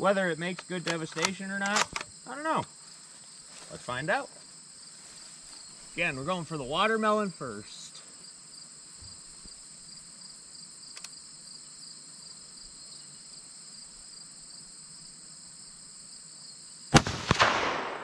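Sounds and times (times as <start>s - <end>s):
insects chirring: 0.0s - 18.0s
rifle shot: 16.9s - 18.0s.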